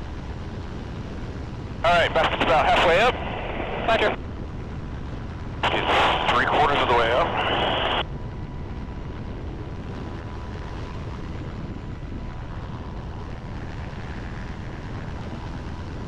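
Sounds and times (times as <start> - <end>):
faint steady whine: 0.0 - 16.0
helicopter rotor and engines: 0.0 - 16.0
wind on microphone: 0.0 - 16.0.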